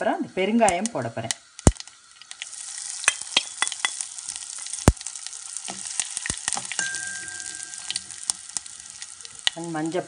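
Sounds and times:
oil sizzling with pops: 0.0s - 10.0s
metal spoon stirring: 5.7s - 9.4s.

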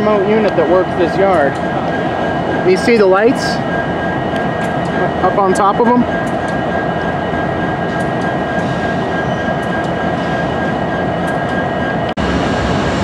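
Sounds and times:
diesel locomotive engines rumbling: 0.0s - 13.0s.

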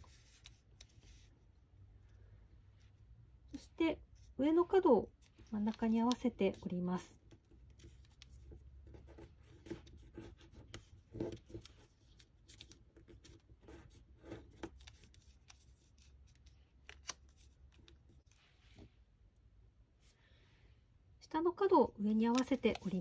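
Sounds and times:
paper crinkling as it is folded: 9.8s - 18.5s.

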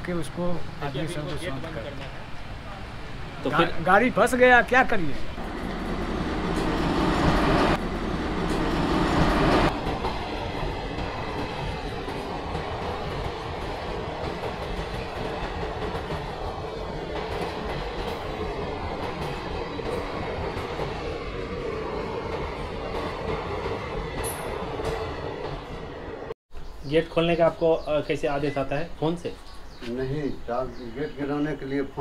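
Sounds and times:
electric locomotive passing: 0.0s - 26.4s
train wheels clickety-clack: 5.4s - 25.8s.

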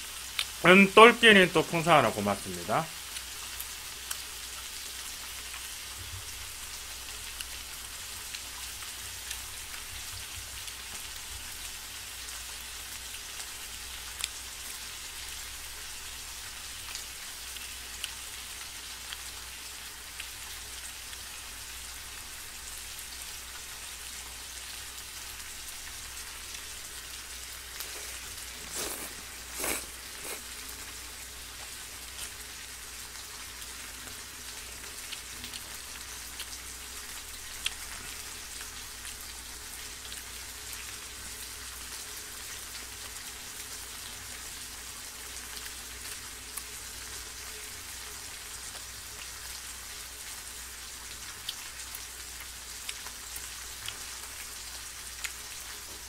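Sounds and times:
pork sizzling in a frying pan: 0.0s - 56.0s
fat spitting pops: 27.8s - 30.5s.

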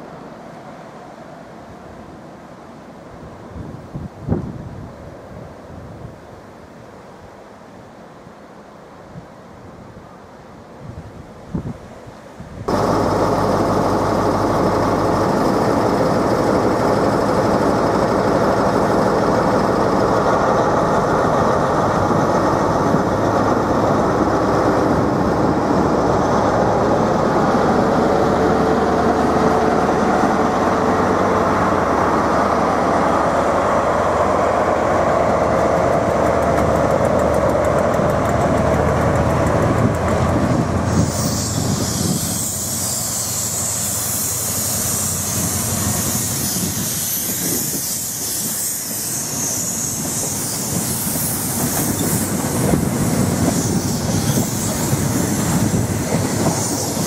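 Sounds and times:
coaches rolling on rails: 12.7s - 57.0s
diesel train engine running: 12.7s - 57.0s
hiss: 40.6s - 57.0s.

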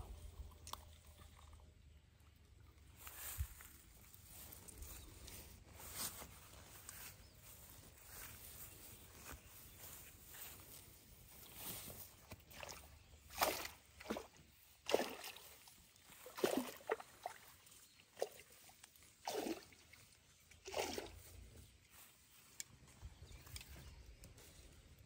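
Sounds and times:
water sloshing and splashing: 0.0s - 3.3s, 11.8s - 21.7s.

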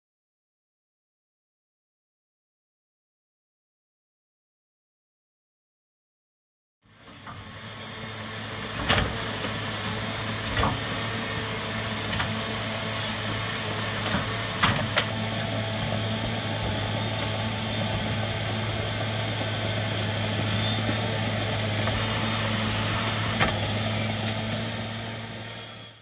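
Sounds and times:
diesel loader engine running: 6.9s - 26.0s.

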